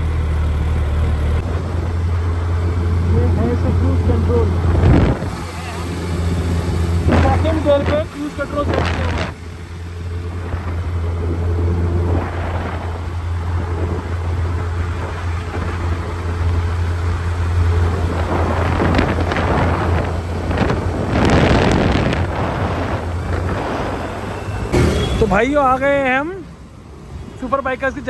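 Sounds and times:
motorcycle engine cruising: 0.0s - 28.0s
wind rumble on microphone: 3.1s - 5.5s, 6.2s - 9.5s, 10.1s - 25.2s.

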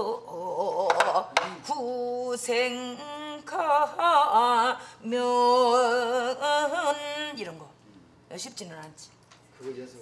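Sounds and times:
woman singing folk song: 0.0s - 7.7s.

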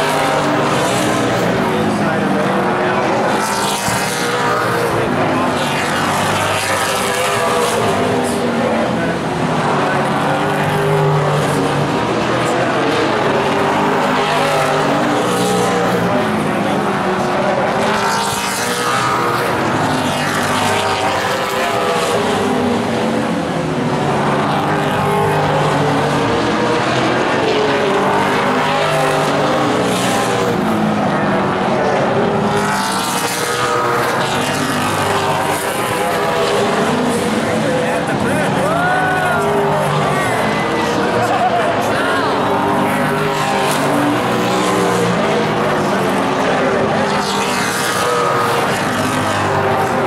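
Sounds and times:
race car engines at full throttle: 0.0s - 50.0s.

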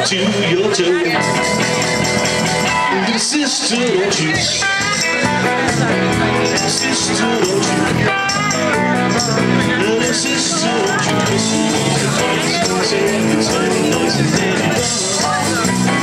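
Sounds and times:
rock band playing: 0.0s - 16.0s.

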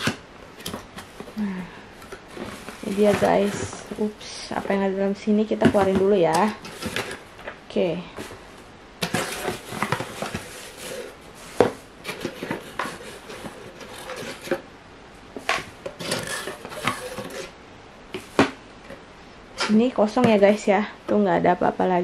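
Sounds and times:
cardboard box rustling and scraping: 2.1s - 7.2s, 8.2s - 14.7s, 15.4s - 17.6s.

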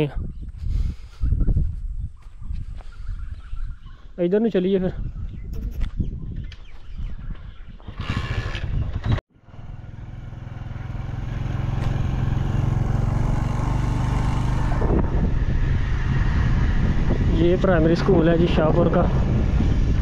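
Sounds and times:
motorcycle engine running: 7.9s - 18.4s.

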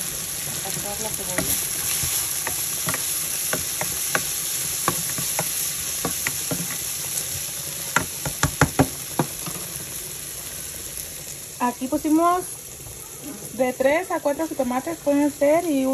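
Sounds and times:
onions sizzling in hot oil: 0.0s - 15.9s
spatula scraping and tapping pan: 1.3s - 6.9s, 7.9s - 9.6s.

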